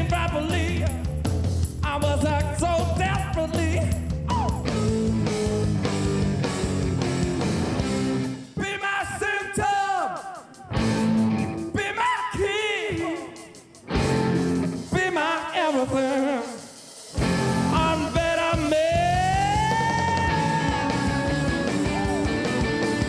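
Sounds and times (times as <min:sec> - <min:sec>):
man singing lead vocal: 0:00.0 - 0:05.2, 0:08.4 - 0:10.8, 0:11.6 - 0:13.9, 0:14.8 - 0:22.5
rock band playing live: 0:00.0 - 0:23.0.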